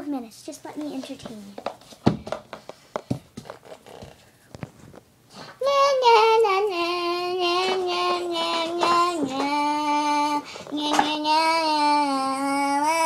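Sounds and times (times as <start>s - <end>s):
child singing: 5.6s - 13.0s.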